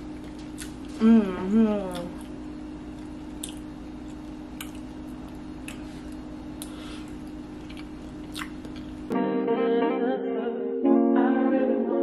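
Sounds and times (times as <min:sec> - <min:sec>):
person chewing food: 0:00.1 - 0:01.0, 0:01.9 - 0:09.1
wet mouth clicks and lip smacks: 0:07.6 - 0:09.0.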